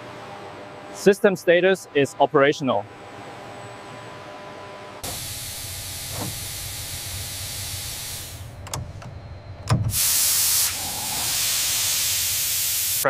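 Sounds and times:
pressurised gas hissing: 5.0 - 8.6, 9.8 - 13.0
thump: 6.1 - 6.4.

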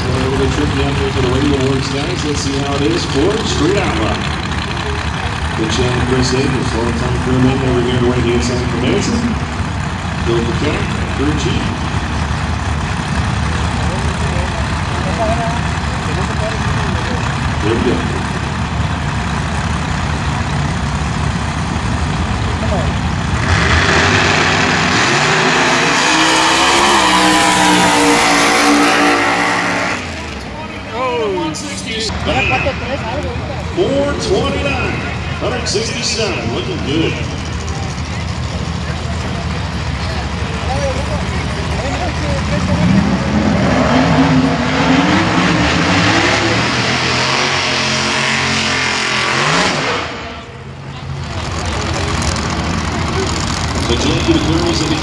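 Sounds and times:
tyres spinning in burnout: 0.0 - 33.2
drag race car engine accelerating: 0.0 - 55.0.

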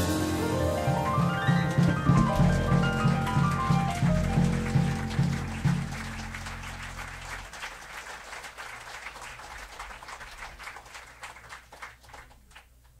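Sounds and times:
jazz trio chord ringing: 0.0 - 7.4
audience applauding: 1.1 - 12.8.

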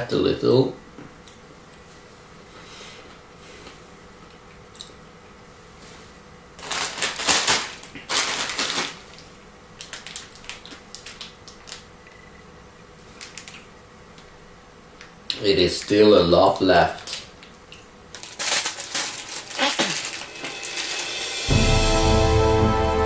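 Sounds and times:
plastic bag crinkling: 6.6 - 11.9, 13.0 - 14.3, 15.4 - 21.4.

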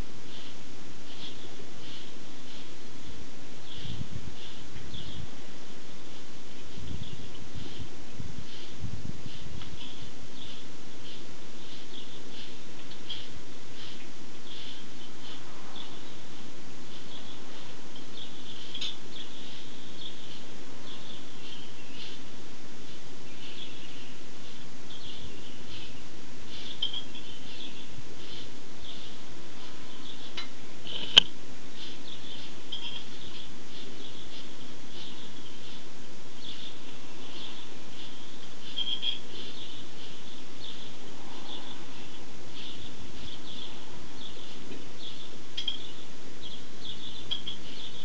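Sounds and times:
small birds chirping: 0.0 - 48.0
steady background noise: 0.0 - 48.0
steady hiss: 0.0 - 48.0.

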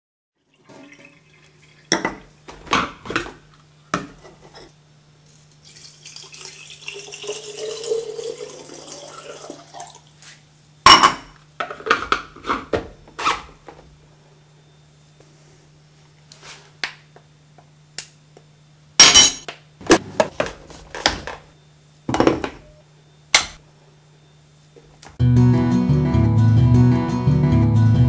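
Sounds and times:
water pouring from a jug: 0.4 - 1.9, 5.6 - 10.1.

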